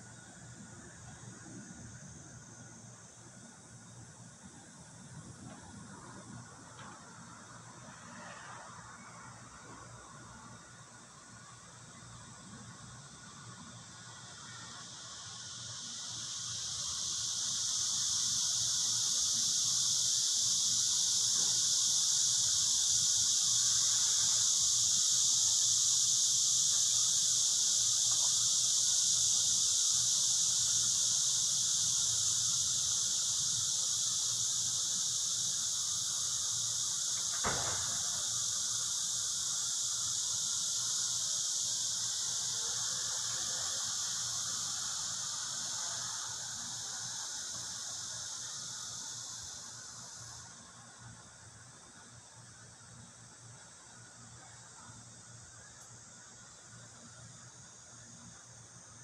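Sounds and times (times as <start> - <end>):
high-pitched hiss: 0.0 - 59.0
short knock: 37.3 - 38.0.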